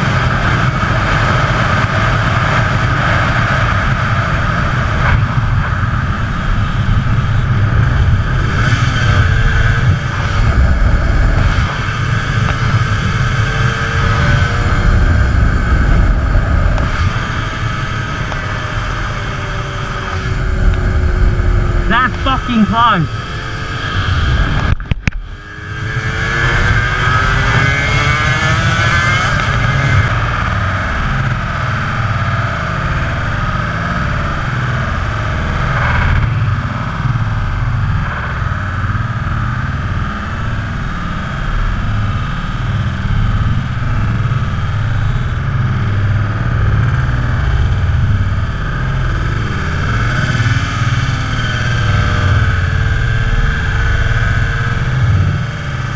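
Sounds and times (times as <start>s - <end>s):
wind rumble on microphone: 0.0s - 21.9s, 23.2s - 55.9s
motorcycle engine running: 0.0s - 55.9s.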